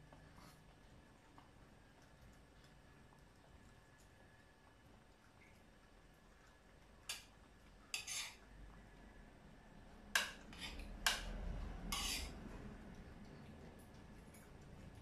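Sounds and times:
cutlery clinking on a plate: 0:10.2 - 0:11.3, 0:11.9 - 0:12.4.

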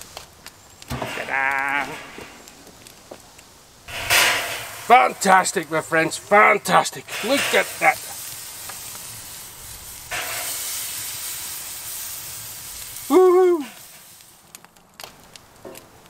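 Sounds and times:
meat sizzling on a grill: 0:00.0 - 0:16.0
person humming: 0:01.1 - 0:02.2, 0:13.1 - 0:13.8.

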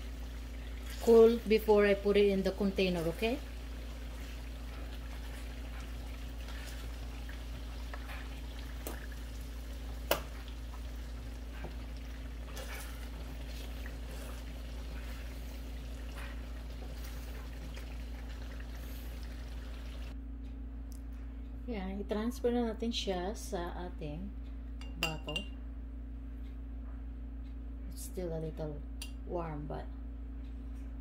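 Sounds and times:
oil sizzling in a frying pan: 0:00.0 - 0:20.2
steady low hum: 0:00.0 - 0:31.0.

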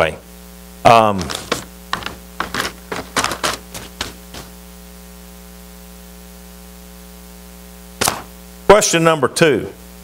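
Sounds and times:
electrical mains hum with hiss: 0:00.0 - 0:10.0
paper sheets rustling: 0:01.0 - 0:04.6.

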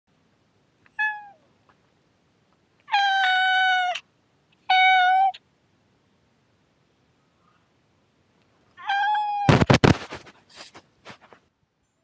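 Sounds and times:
cat meowing: 0:00.9 - 0:01.5, 0:02.8 - 0:05.4, 0:08.8 - 0:09.7.

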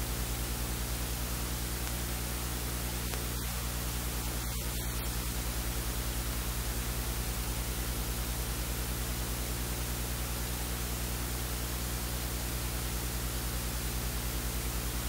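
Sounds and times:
recording hiss: 0:00.0 - 0:09.6
low electrical hum: 0:00.0 - 0:15.0.

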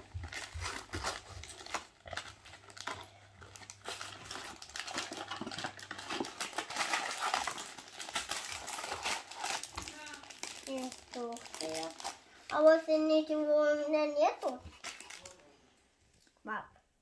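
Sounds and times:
cardboard tearing and crinkling: 0:00.0 - 0:12.2, 0:14.4 - 0:15.4.

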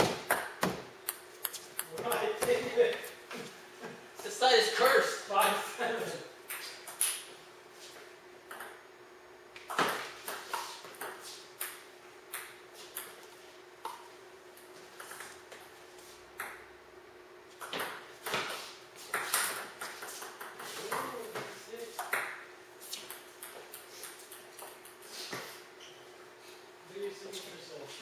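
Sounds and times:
faint steady hum: 0:00.0 - 0:28.0
ping pong ball clicking off paddles: 0:08.5 - 0:08.8.

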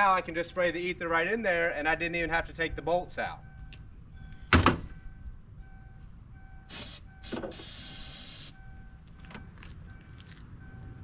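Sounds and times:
aerosol can spraying: 0:06.7 - 0:08.6.

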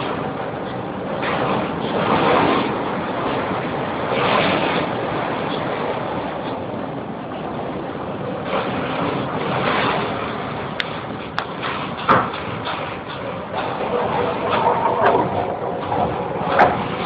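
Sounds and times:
rough sea waves breaking: 0:00.0 - 0:17.0
wind rushing: 0:13.2 - 0:17.0.

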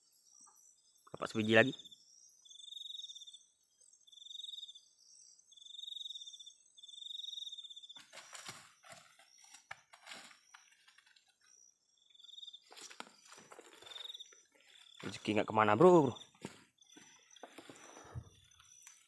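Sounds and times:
insect chorus: 0:00.0 - 0:19.0
insect trills: 0:00.0 - 0:19.0
footsteps in dry leaves: 0:08.0 - 0:11.0, 0:12.6 - 0:15.4.

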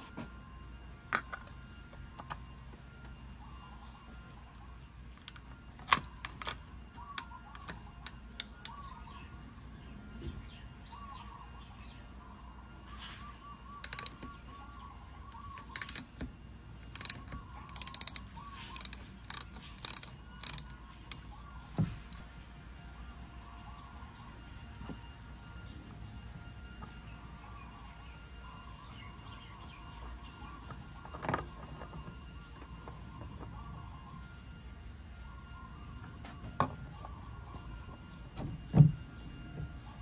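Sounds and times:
birds chirping faintly: 0:00.0 - 0:40.0
ratchet clicking: 0:13.8 - 0:14.2, 0:15.6 - 0:16.3, 0:16.9 - 0:21.3.

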